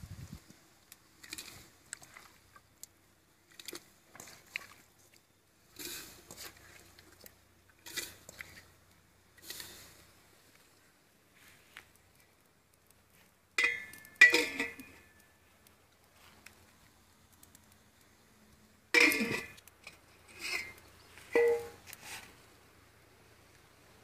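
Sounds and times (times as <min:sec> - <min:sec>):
metal lid clanking on pot: 0:13.6 - 0:15.0, 0:19.0 - 0:19.6, 0:21.4 - 0:21.8.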